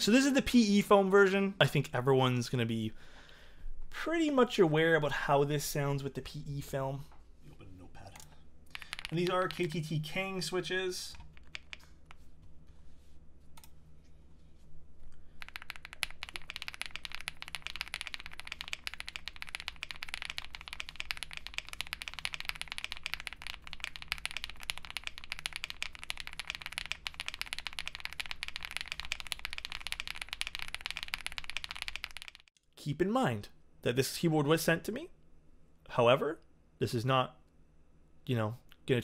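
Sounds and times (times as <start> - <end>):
mechanical keyboard typing: 8.7 - 10.3, 11.1 - 11.8, 15.4 - 32.5.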